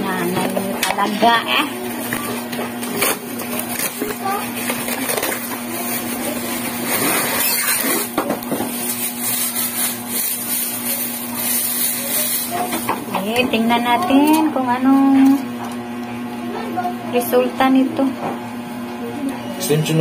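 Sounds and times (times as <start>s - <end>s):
bubble wrap crinkling: 2.0s - 12.8s.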